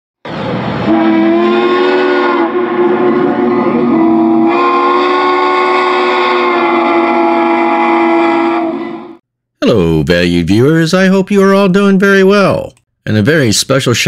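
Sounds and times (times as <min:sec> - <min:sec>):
steam locomotive chime whistle: 0:00.8 - 0:09.2.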